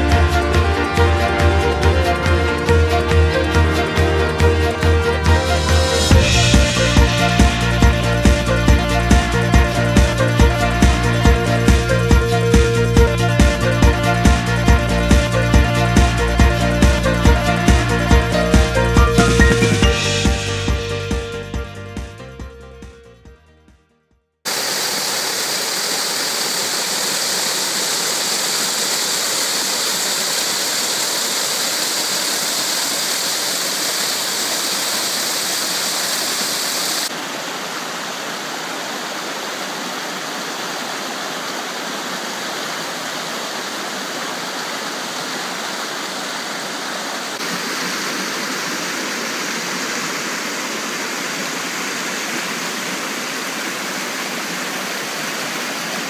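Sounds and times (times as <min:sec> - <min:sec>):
stream rushing over boulders: 0:24.5 - 0:56.0
waterfall splashing into pool: 0:24.5 - 0:56.0
white water through rock chute: 0:24.5 - 0:56.0.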